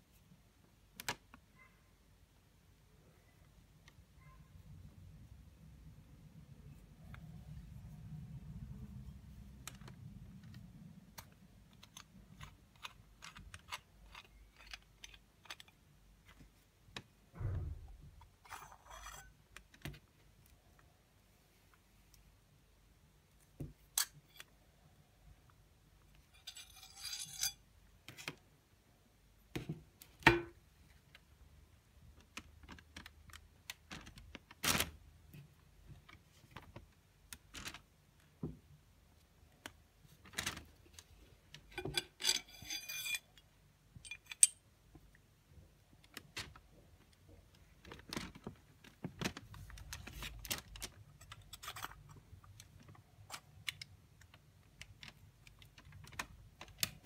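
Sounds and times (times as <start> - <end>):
metal clicks and scrapes: 26.1 - 27.6, 41.6 - 44.6, 50.4 - 52.7
metal fittings sliding on knife tang: 26.4 - 27.6, 42.2 - 43.3.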